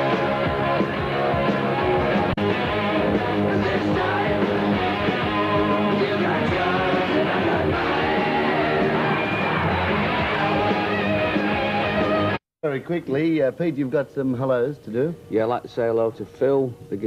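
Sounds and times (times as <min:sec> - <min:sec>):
hard rock music with vocals: 0:00.0 - 0:12.4.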